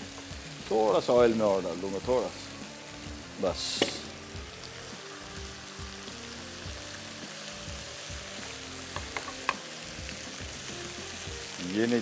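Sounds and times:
onions sizzling in oil: 0.0s - 12.0s
spatula clicking on pan: 9.0s - 9.6s.

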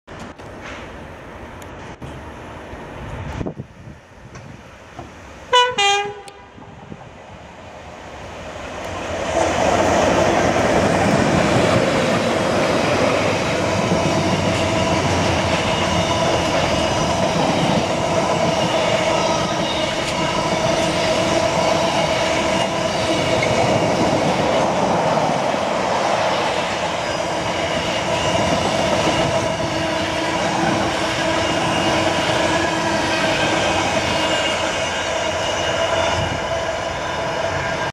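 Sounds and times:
train wheels rumbling on rail: 0.1s - 37.9s
two-tone locomotive horn: 5.5s - 6.7s.

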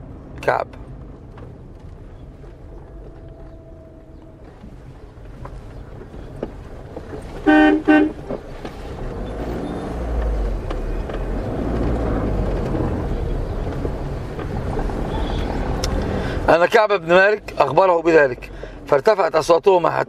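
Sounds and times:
road traffic rumble: 0.0s - 20.0s
vehicle horn toots: 7.4s - 8.3s.

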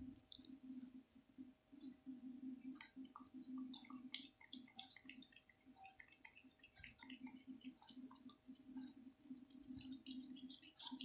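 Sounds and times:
cat licking yogurt: 2.7s - 11.0s.

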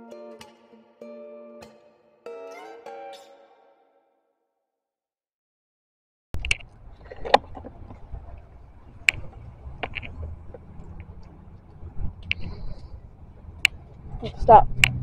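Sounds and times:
low steady rumble: 6.4s - 15.0s.

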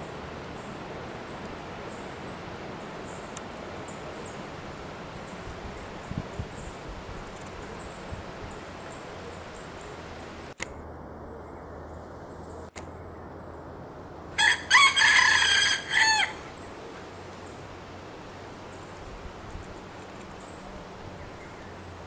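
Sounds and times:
faint forest hiss: 0.0s - 22.0s
rooster crowing: 14.4s - 16.6s.

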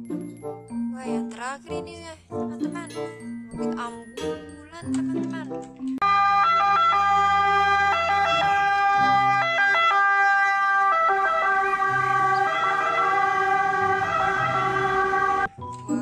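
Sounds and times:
electronic siren-like tones: 6.0s - 15.5s.

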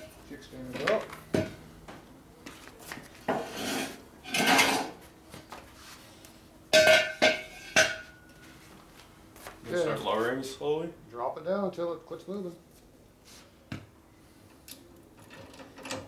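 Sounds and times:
long scrape: 3.4s - 4.0s.

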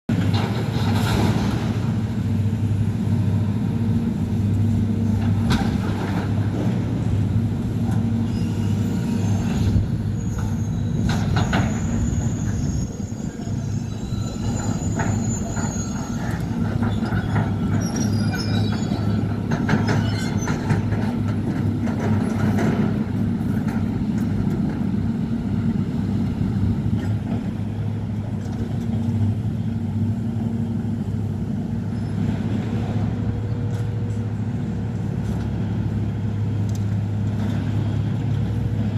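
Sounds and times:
diesel engine running: 0.1s - 38.9s
scrap metal screeching: 8.2s - 19.2s, 19.8s - 20.7s.

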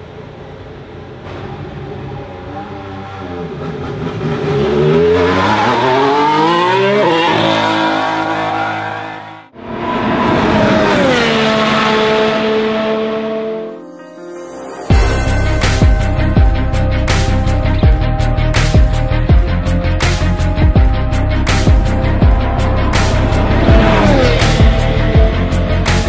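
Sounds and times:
racing car engine accelerating: 1.1s - 13.8s, 21.2s - 26.0s.

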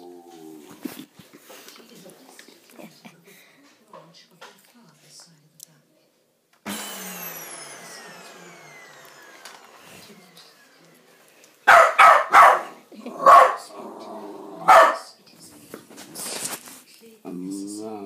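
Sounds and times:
vacuum cleaner motor whining down: 6.6s - 11.6s
dog barking: 11.7s - 13.7s, 14.6s - 15.2s.

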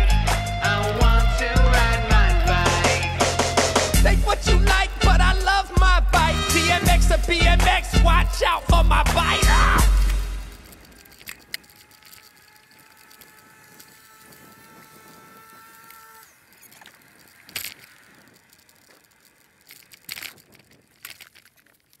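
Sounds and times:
bicycle rattling: 0.0s - 22.0s
faint steady whine: 0.3s - 22.0s
sharp clicks: 6.9s - 22.0s.

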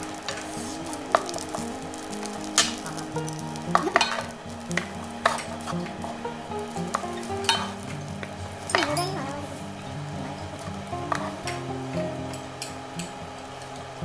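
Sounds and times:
rice sizzling in frying pan: 0.0s - 14.0s
spatula scraping and tapping pan: 6.6s - 9.2s, 10.2s - 13.2s.

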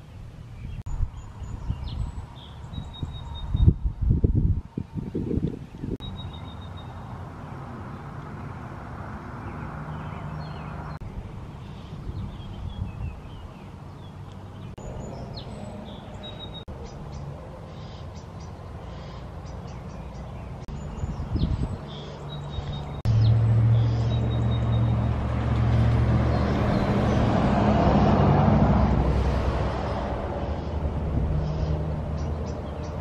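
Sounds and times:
songbirds chirping: 0.0s - 4.1s, 4.7s - 28.5s, 29.7s - 33.0s
vehicle engine: 6.0s - 12.7s, 13.6s - 33.0s.

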